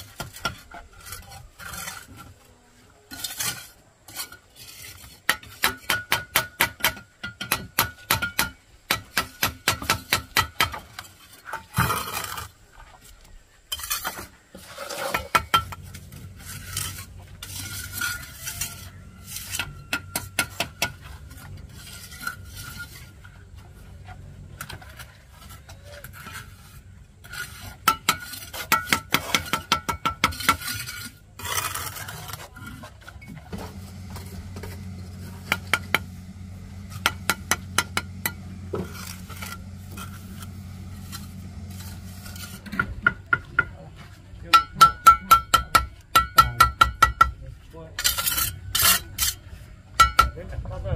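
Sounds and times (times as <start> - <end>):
trowel scraping on brick: 0.0 - 8.1, 8.9 - 13.0, 13.6 - 43.7, 48.0 - 50.2
low steady hum: 30.9 - 45.0.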